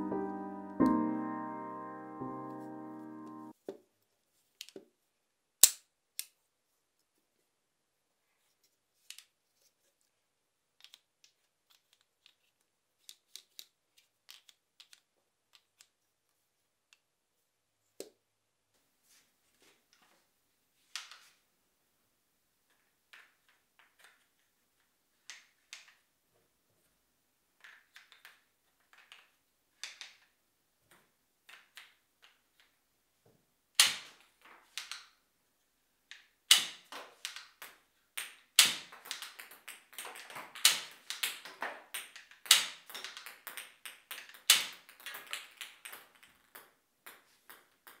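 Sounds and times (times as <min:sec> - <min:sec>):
wooden toy gun clicking and clacking: 0:10.8 - 0:16.0, 0:25.2 - 0:26.0, 0:27.6 - 0:30.4, 0:31.5 - 0:32.8, 0:33.8 - 0:35.2, 0:36.1 - 0:48.0.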